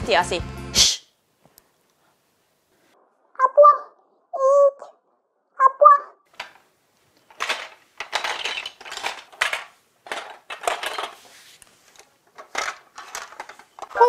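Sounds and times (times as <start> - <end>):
plastic bricks clattering: 6.3 - 11.3, 11.9 - 14.0.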